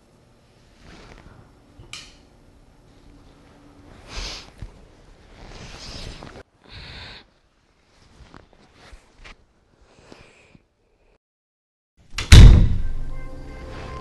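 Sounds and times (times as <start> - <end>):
bedcovers rustling: 0.6 - 1.4, 2.9 - 6.5, 7.6 - 9.7.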